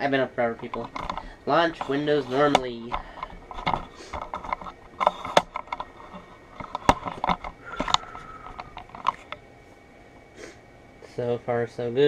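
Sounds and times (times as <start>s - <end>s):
handling noise clicks and rustles: 0.4s - 9.4s.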